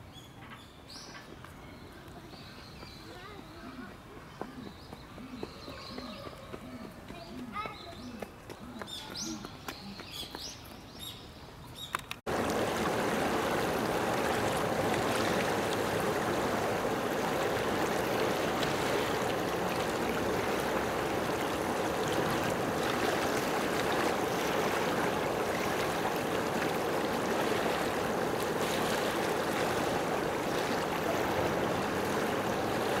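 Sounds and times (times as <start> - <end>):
flowing water rushing: 12.3 - 33.0.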